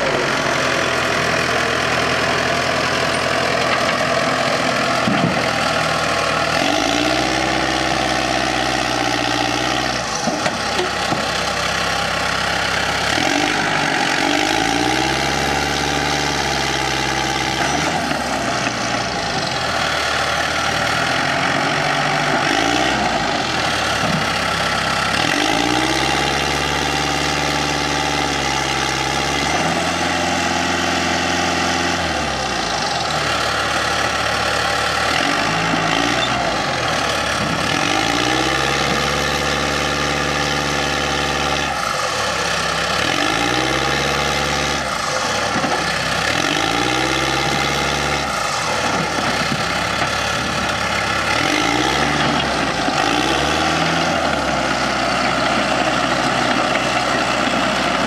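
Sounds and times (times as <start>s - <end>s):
dozer diesel engine revving: 0.0s - 58.0s.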